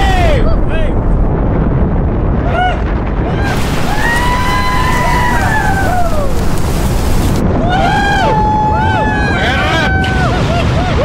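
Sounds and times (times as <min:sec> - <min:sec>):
wind rushing: 0:00.0 - 0:11.0
people screaming: 0:02.5 - 0:06.7, 0:07.5 - 0:11.0.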